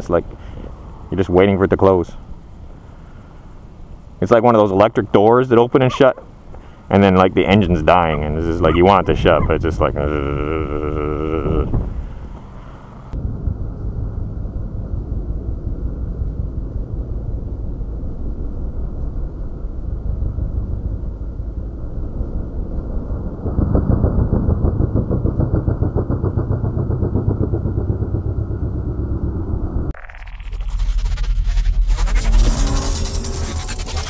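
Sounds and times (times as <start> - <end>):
motorcycle engine running: 22.9 - 34.0.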